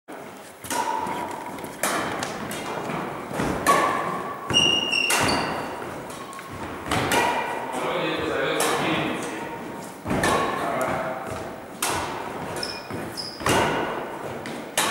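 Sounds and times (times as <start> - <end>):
shoe squeaks: 0.4 - 3.4, 4.1 - 6.6, 12.5 - 13.9
footfalls on wooden floor: 0.6 - 7.1
rackets hitting shuttlecock: 0.6 - 7.9, 8.5 - 14.9.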